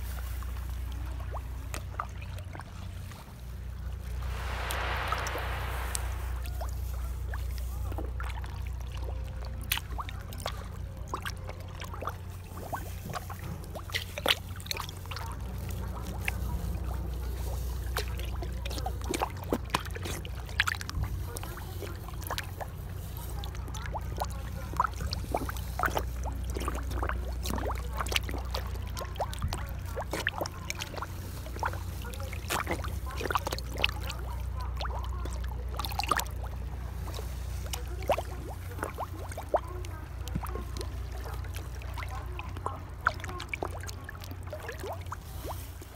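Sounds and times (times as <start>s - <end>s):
low rumble: 4.0s - 7.0s
fish gulping at water surface: 23.8s - 45.9s.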